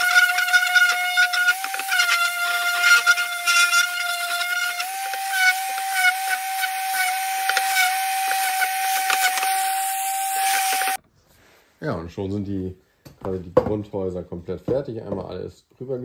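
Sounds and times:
orbital sander whine: 0.0 - 11.0
sanding pad scratching wood: 0.0 - 11.0.

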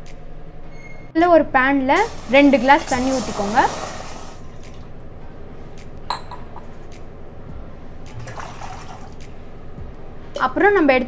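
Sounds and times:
water pouring into metal pan: 2.1 - 4.8, 8.2 - 9.2.

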